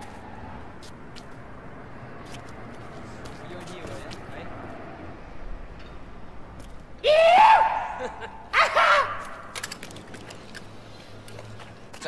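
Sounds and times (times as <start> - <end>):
person yelling: 7.0 - 9.3.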